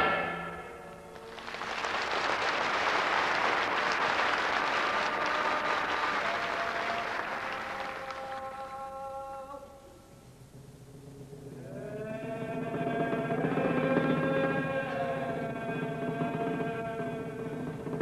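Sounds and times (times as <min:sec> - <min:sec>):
audience applauding: 0:01.1 - 0:08.8.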